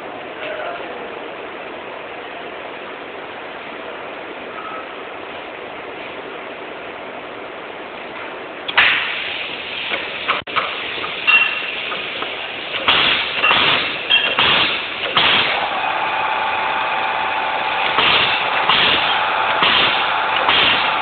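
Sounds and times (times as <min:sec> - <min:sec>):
steady hum with whine: 0:00.0 - 0:21.0
machine hissing bursts with clacks: 0:08.7 - 0:21.0.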